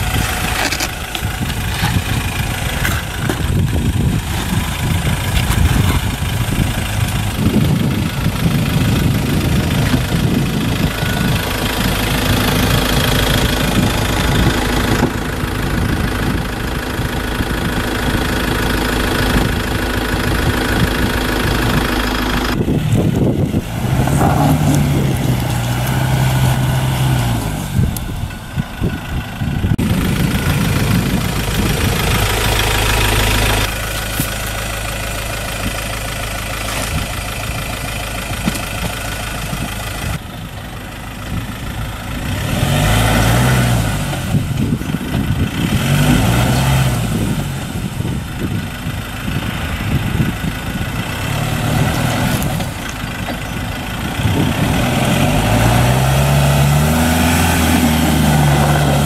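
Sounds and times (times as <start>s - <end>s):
pickup engine revving: 17.6s - 40.2s, 41.5s - 59.0s.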